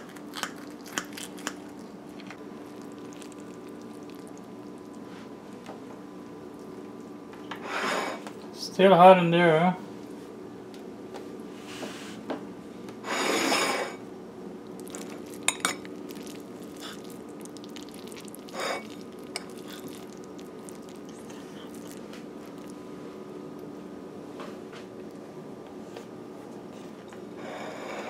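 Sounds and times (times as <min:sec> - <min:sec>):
steady hum: 0:00.0 - 0:28.0
spoon clinking on ceramic: 0:15.5 - 0:15.8.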